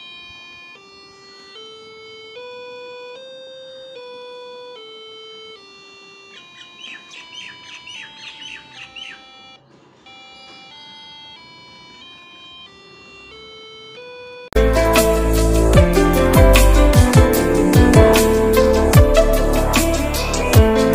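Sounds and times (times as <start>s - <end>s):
buzzy electronic beeps scale: 0.0s - 9.6s
quick chirps: 6.3s - 9.5s.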